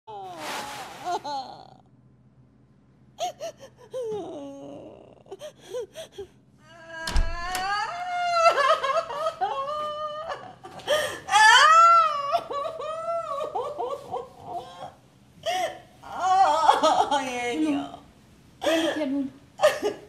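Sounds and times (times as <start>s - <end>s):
woman wailing and sobbing: 3.2s - 17.2s.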